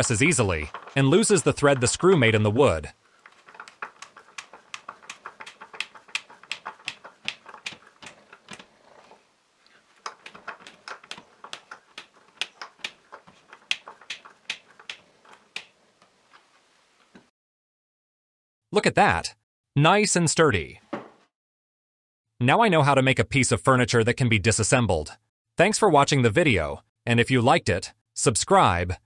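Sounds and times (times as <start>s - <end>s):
screw clicking and creaking into board: 0.0s - 2.4s, 3.2s - 16.5s.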